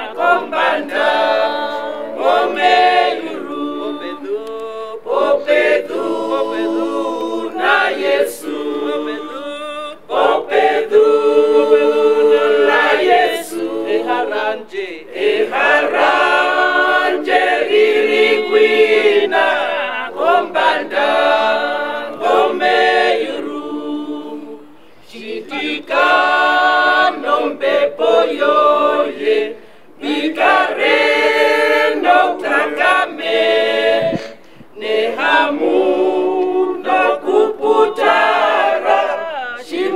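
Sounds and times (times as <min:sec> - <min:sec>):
group singing a hymn: 0:00.0 - 0:39.9.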